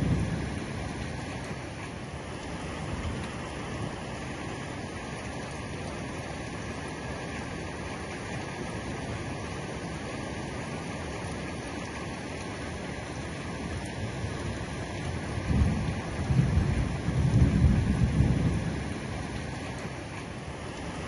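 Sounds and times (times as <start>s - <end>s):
thunder rumbling: 0.0s - 1.2s, 15.2s - 19.5s
heavy rain: 0.0s - 21.0s.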